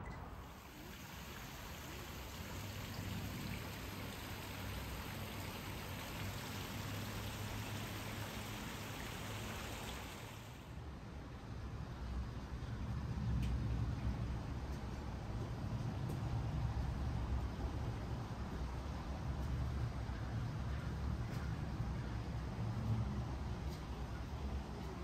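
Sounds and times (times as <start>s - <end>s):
running water hiss: 0.4s - 10.8s.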